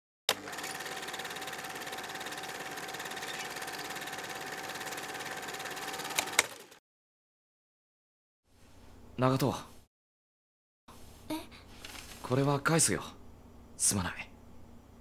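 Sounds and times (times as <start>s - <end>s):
film projector whirring: 0.3s - 6.8s.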